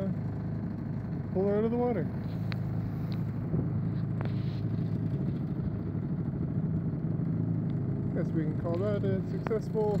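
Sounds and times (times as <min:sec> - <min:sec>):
outboard motor running: 0:00.0 - 0:10.0.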